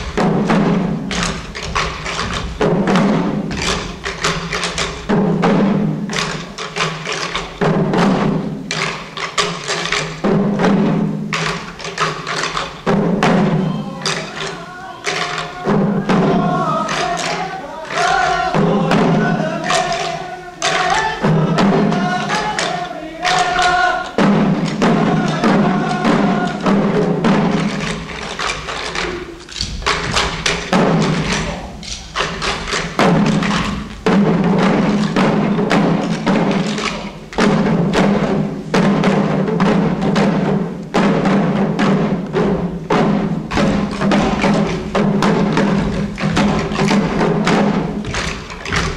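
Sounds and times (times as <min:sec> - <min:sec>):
drums pounding rhythm: 0:00.0 - 0:48.9
people chanting: 0:13.2 - 0:27.6, 0:30.7 - 0:32.4, 0:43.7 - 0:48.0.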